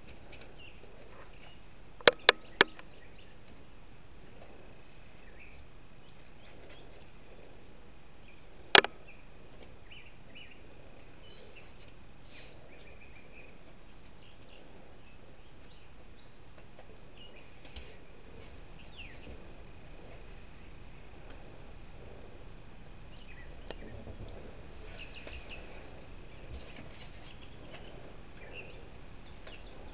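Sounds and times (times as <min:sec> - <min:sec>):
steady background hiss: 0:00.0 - 0:29.9
faint bird chirps: 0:00.5 - 0:03.8, 0:04.6 - 0:18.0, 0:18.7 - 0:21.5, 0:22.1 - 0:29.9
sharp click: 0:08.8 - 0:09.0.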